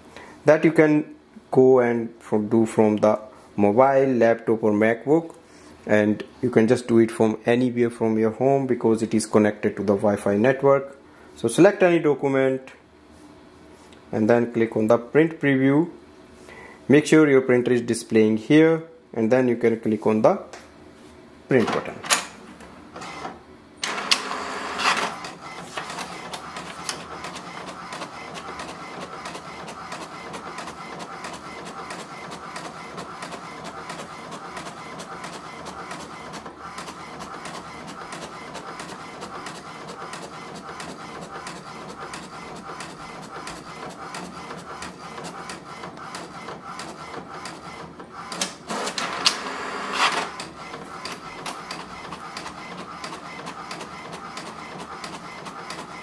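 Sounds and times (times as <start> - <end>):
printer motor noise: 22.9 - 56.0
printer carriage ticking: 23.9 - 56.0.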